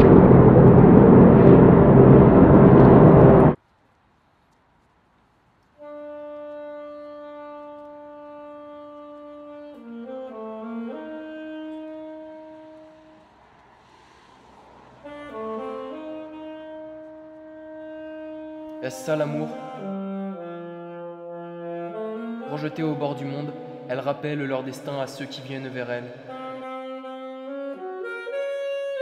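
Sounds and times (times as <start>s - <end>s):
loud steady rumbling: 0.0s - 3.6s
solo wind instrument playing: 5.8s - 13.4s, 15.0s - 29.0s.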